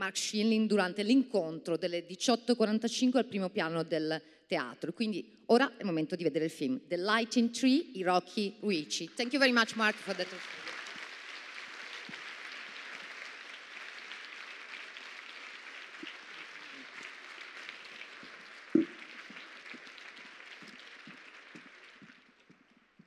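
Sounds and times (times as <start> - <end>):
audience applauding: 9.6 - 23.0.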